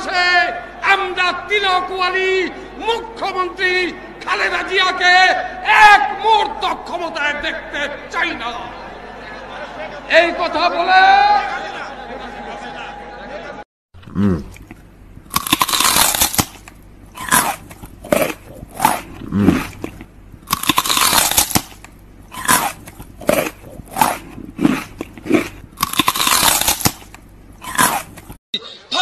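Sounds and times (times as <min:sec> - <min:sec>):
man growling: 0:14.0 - 0:14.6, 0:18.5 - 0:19.8.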